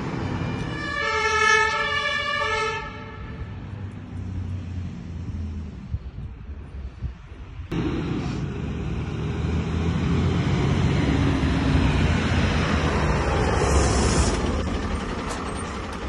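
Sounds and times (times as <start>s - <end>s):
fire engine two-tone siren: 0.0s - 3.4s
street traffic: 0.0s - 16.0s
truck engine rumble: 0.0s - 16.0s.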